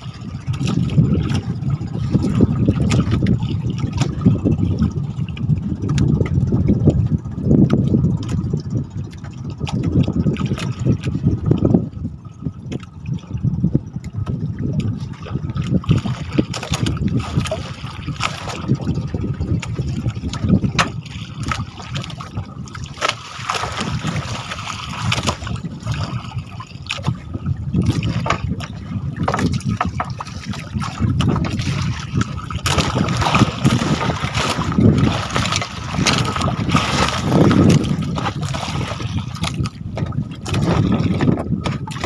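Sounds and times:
water sloshing around boat: 0.0 - 42.0
wind on microphone: 0.0 - 42.0
knocks and clatter on board: 16.4 - 17.6, 20.6 - 22.3, 27.8 - 42.0.

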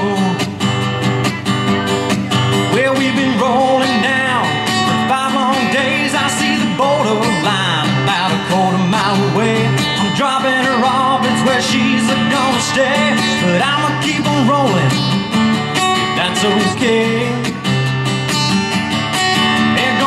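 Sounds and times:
acoustic guitar strummed: 0.0 - 20.0.

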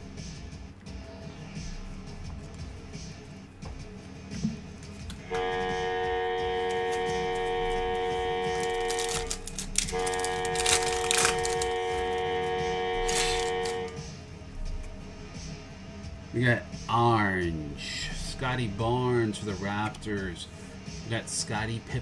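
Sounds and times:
horn-like chord blasts: 5.2 - 14.1
foil wrapper crinkling and tearing: 8.5 - 12.2, 13.0 - 13.9.

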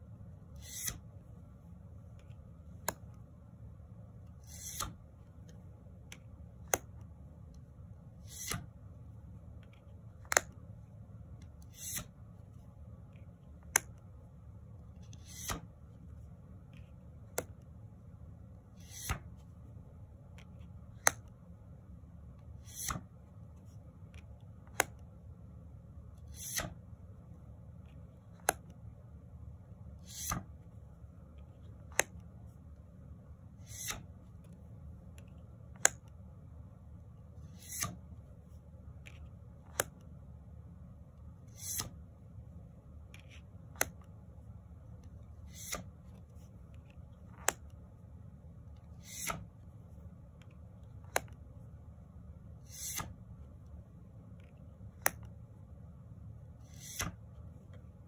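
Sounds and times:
low room hum: 0.0 - 58.0
card swishing across deck: 0.6 - 1.0, 4.4 - 5.0, 8.2 - 8.7, 11.7 - 12.1, 15.2 - 15.6, 18.8 - 19.3, 26.3 - 26.8, 30.0 - 30.5, 33.6 - 34.1, 37.5 - 38.0, 41.5 - 42.0, 45.5 - 45.9, 49.0 - 49.5, 52.6 - 53.1, 56.6 - 57.2
card snapping: 47.3 - 47.7, 51.0 - 51.4.

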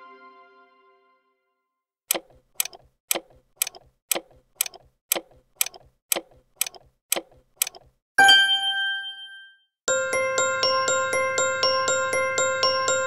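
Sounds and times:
clock ticking: 2.1 - 8.0.

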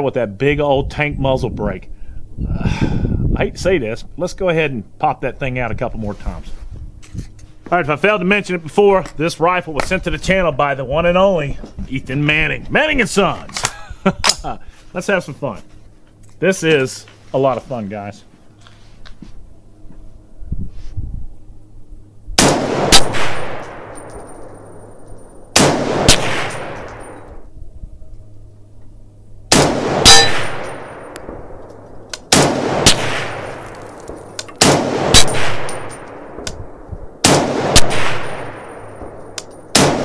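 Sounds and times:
rifle shots echoing: 22.4 - 27.4, 29.5 - 40.0.

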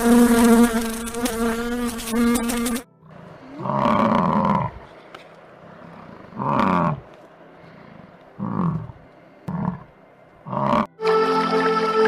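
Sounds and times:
cow mooing: 3.4 - 4.8, 6.3 - 7.1, 8.4 - 8.9, 10.5 - 10.9.

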